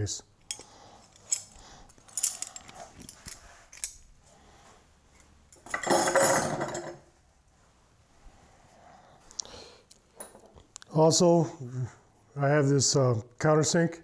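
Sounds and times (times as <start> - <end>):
steel hand tools clinking: 0.5 - 4.0.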